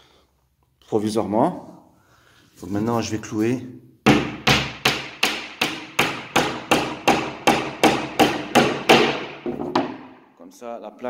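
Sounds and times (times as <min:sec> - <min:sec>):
hammer driving nail into wood: 0:04.0 - 0:10.2.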